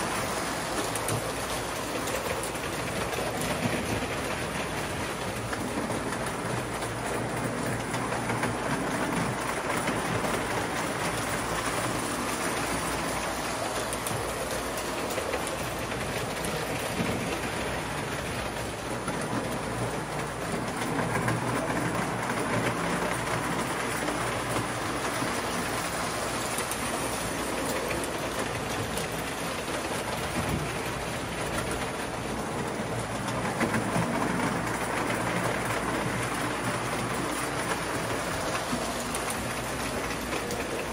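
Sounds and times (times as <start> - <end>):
toy train wheels rattling on rails: 0.0 - 40.9.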